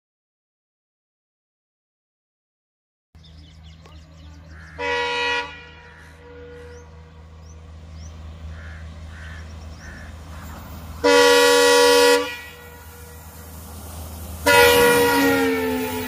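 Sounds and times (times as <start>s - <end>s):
locomotive horn blasts: 4.6s - 7.4s, 11.0s - 13.6s, 14.4s - 16.0s.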